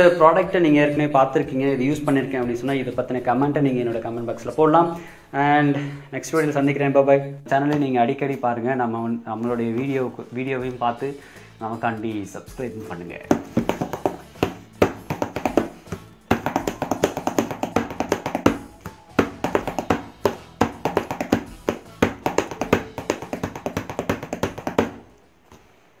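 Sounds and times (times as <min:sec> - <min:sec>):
background music: 0:00.0 - 0:26.0
fingers drumming on cardboard: 0:13.3 - 0:25.1.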